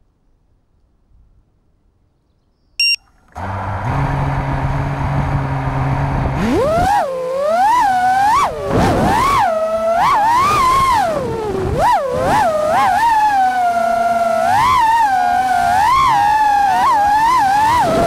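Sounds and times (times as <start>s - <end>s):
short high beep: 2.8s - 3.0s
quadcopter motors whining: 6.5s - 18.0s.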